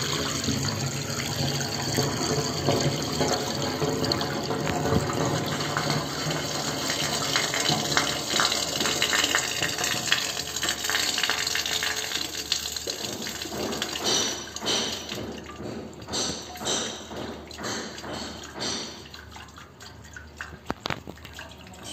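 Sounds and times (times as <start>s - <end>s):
water swirling down a drain: 0.0s - 16.1s
water trickling and dripping: 0.0s - 21.9s.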